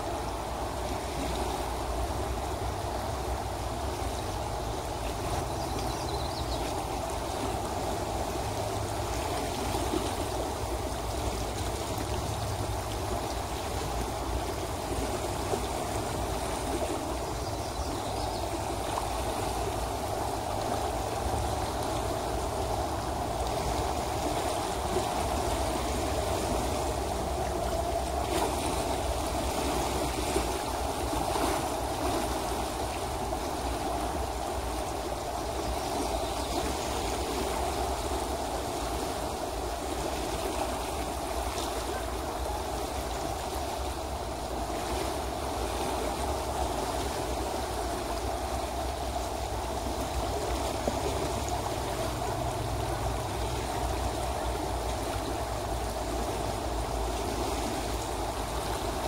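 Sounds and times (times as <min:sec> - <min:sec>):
river rushing over shallows: 0:00.0 - 0:59.0.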